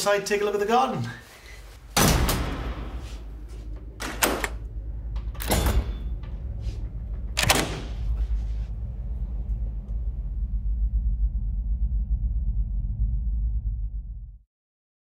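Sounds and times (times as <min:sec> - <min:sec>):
low steady rumble: 0:01.2 - 0:14.4.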